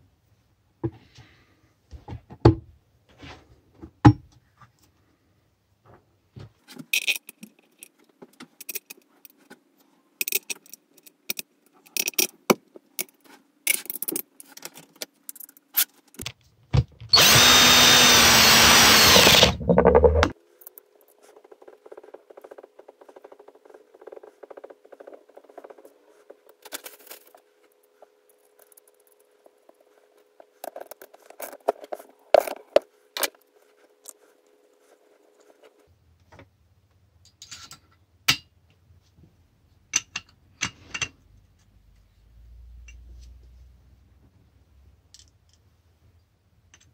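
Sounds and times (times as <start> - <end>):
hand-held power tool running: 17.1 - 20.4.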